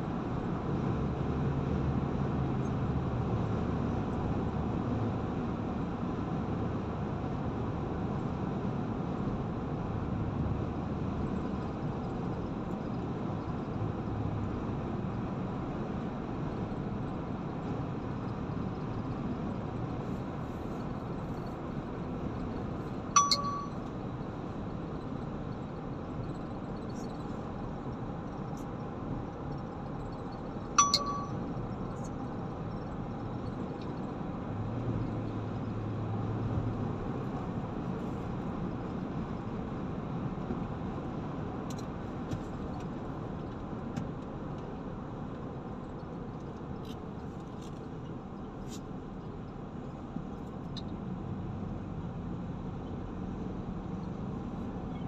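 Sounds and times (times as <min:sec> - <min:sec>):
car road and engine noise: 0:00.0 - 0:55.0
short sharp ding: 0:23.2 - 0:23.8, 0:30.8 - 0:31.4.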